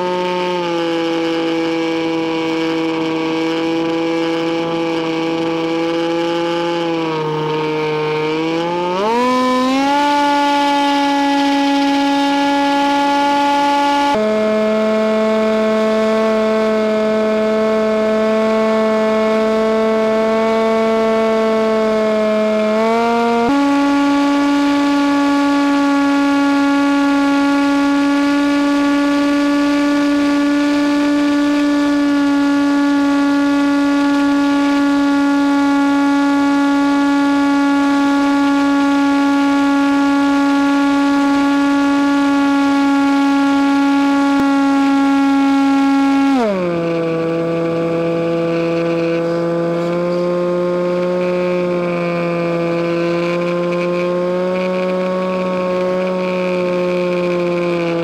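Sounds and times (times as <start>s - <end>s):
model plane electric motor whine: 0.0s - 58.0s.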